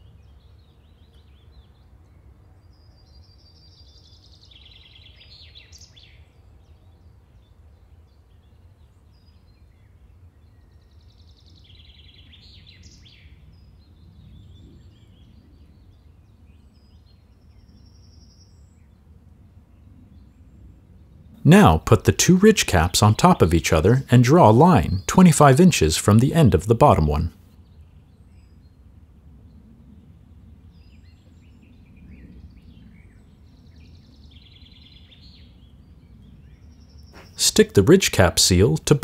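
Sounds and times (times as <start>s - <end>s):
birds singing: 2.6s - 19.0s, 29.4s - 37.4s.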